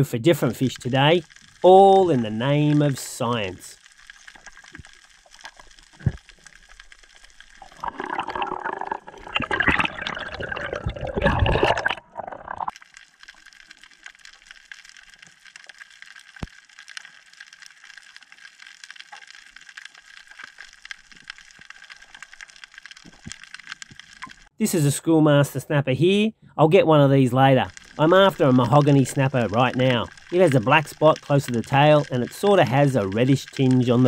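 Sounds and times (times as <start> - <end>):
water bubbling and gurgling: 0.0 - 24.6, 27.5 - 34.0
underwater crackling hiss: 0.4 - 9.7, 27.4 - 34.0.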